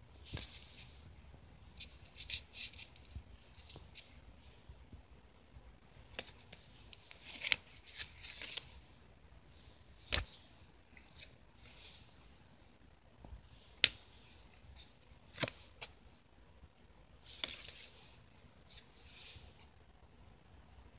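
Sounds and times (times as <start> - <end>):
cards sliding rustles: 0.2 - 1.0, 6.0 - 12.7, 13.4 - 16.0, 17.2 - 19.7.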